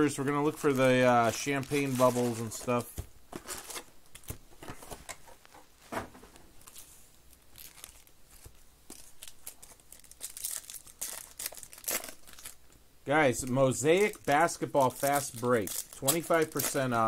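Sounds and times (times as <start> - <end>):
foil wrappers crinkling: 0.0 - 4.9, 6.6 - 12.7, 13.3 - 17.0
foil pack tearing open: 0.8 - 2.8, 9.0 - 12.6, 14.0 - 17.0.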